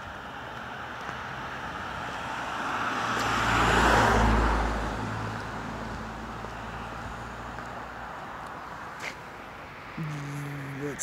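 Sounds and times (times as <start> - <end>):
car passing by: 1.0 - 10.0.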